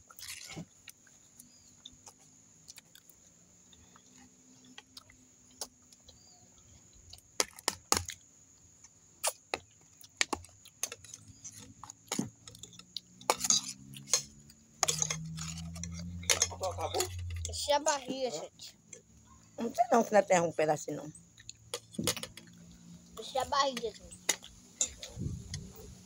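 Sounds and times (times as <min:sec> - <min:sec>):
cutlery clinking on metal plates: 0:13.2 - 0:17.5, 0:24.2 - 0:25.2.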